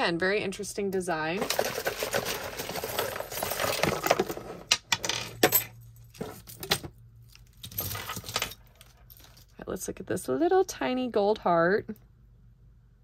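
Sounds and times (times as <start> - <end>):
metal jewelry jangling: 7.4 - 9.5.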